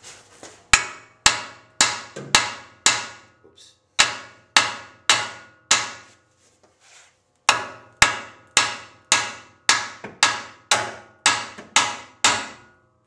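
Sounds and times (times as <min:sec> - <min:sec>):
hammer striking steel: 0:00.7 - 0:03.4, 0:04.0 - 0:06.1, 0:07.5 - 0:12.8.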